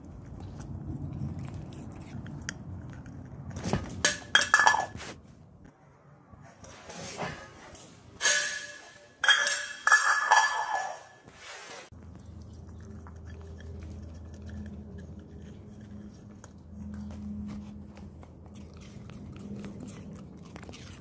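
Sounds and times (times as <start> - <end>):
dish clinking and clattering: 3.6 - 5.0, 7.3 - 11.3.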